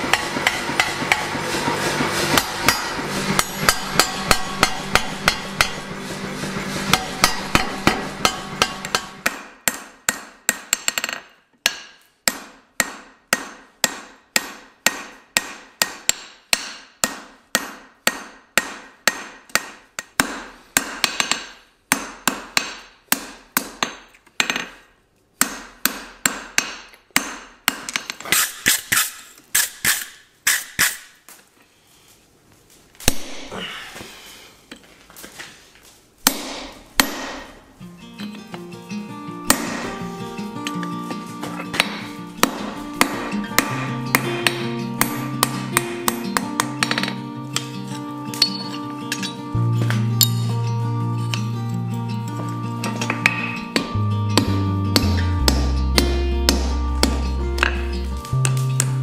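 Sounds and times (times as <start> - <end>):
power hammer pounding steel: 0.0 - 11.0, 36.2 - 37.6, 39.5 - 40.0, 41.6 - 47.1
hand hammer striking anvil: 0.0 - 24.8, 25.4 - 31.1, 33.0 - 33.6, 36.2 - 38.6, 39.4 - 40.0, 40.6 - 50.6, 52.3 - 59.0.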